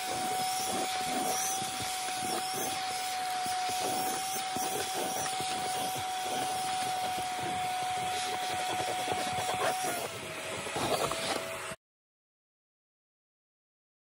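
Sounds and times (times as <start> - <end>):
shop vacuum whine: 0.0 - 11.8.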